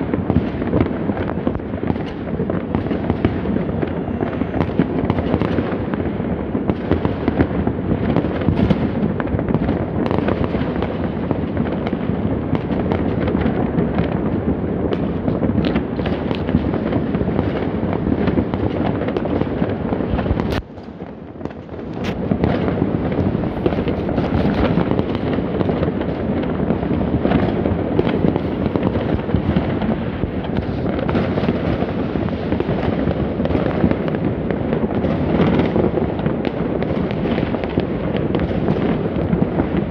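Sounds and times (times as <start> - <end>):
fireworks and firecrackers popping: 0.0 - 39.9.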